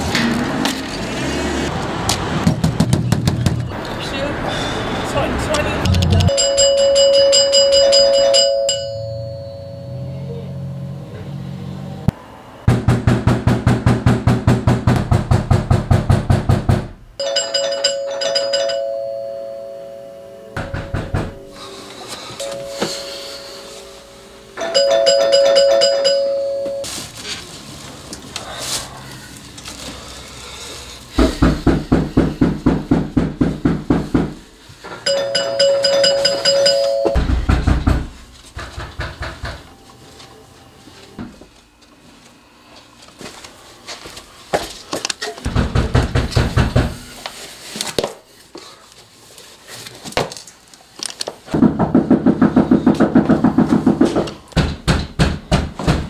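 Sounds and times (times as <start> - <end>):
two-tone chime: 6.2 - 10.8, 22.4 - 26.9, 35.1 - 37.2.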